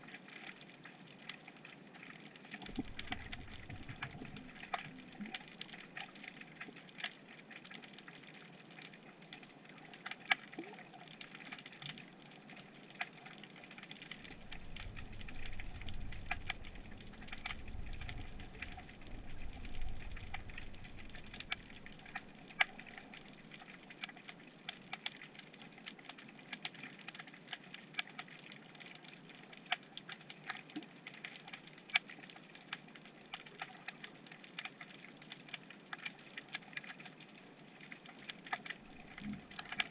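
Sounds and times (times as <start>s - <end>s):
snapping shrimp clicks underwater: 0.0s - 39.9s
low rumble: 14.2s - 22.3s.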